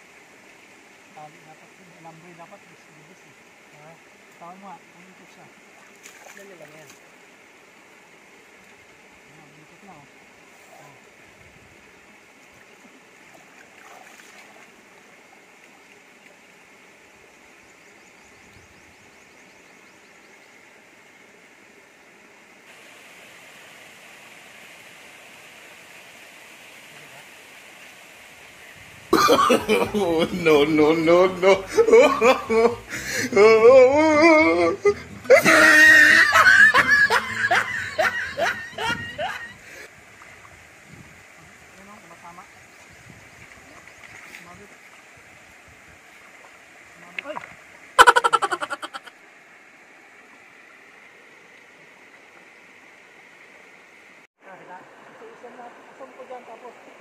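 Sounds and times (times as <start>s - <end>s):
river running over rocks: 0.0s - 17.6s, 20.7s - 57.0s
man laughing loudly: 29.2s - 39.6s, 48.0s - 49.1s.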